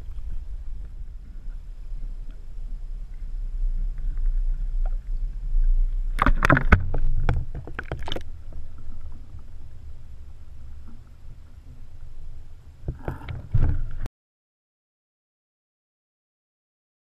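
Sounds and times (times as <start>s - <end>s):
underwater low rumble: 0.0s - 14.1s.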